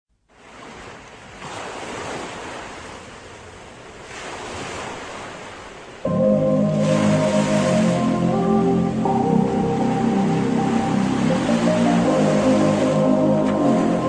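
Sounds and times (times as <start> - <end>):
ocean surf washing in: 0.3 - 14.0
music with sustained notes: 6.1 - 14.0.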